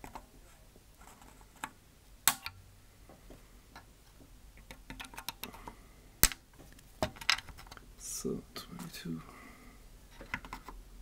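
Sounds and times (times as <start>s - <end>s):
pliers snapping capacitors: 2.3s - 2.6s.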